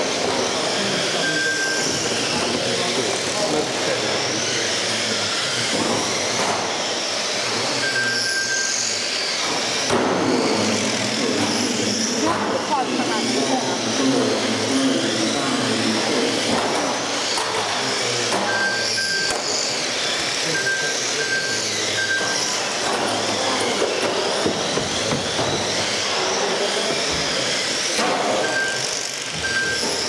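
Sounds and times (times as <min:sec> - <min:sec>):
rc car motors whining: 0:00.0 - 0:30.0
short high electronic beeps: 0:18.5 - 0:19.4.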